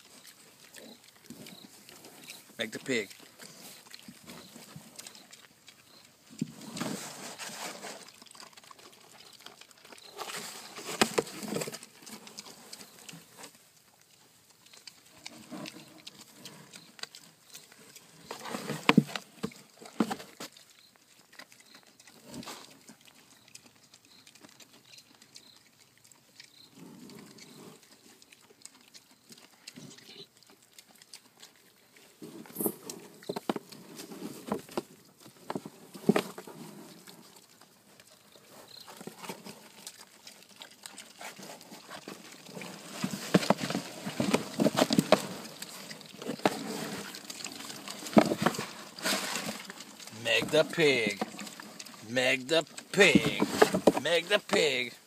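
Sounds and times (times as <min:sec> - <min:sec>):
pigs scuffling: 0:00.0 - 0:55.0
pigs grunting: 0:39.0 - 0:55.0.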